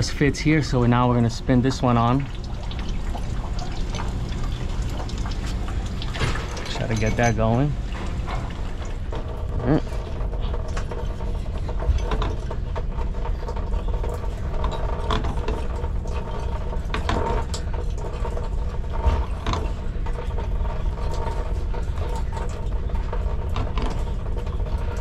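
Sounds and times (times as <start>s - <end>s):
steady hum: 0.0s - 25.0s.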